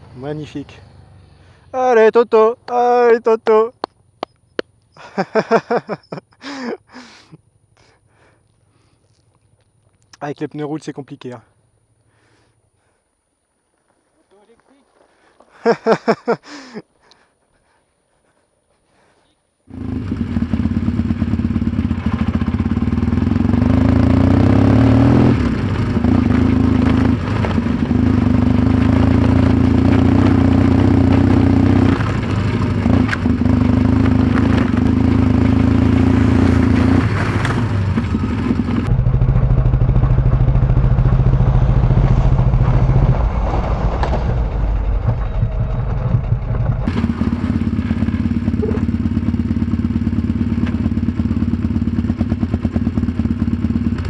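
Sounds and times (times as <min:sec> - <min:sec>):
motorcycle engine under load: 0:19.7 - 0:54.0
motorcycle knocks and clatter: 0:26.0 - 0:30.0, 0:31.1 - 0:35.6, 0:37.0 - 0:54.0.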